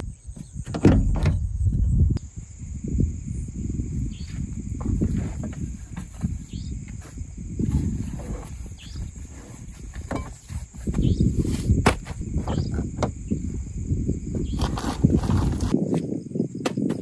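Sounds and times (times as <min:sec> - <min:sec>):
crickets chirring: 0:00.0 - 0:17.0
wind buffeting microphone: 0:00.0 - 0:17.0
camping gear rustling and knocking: 0:00.3 - 0:01.9, 0:04.2 - 0:13.4, 0:14.2 - 0:17.0.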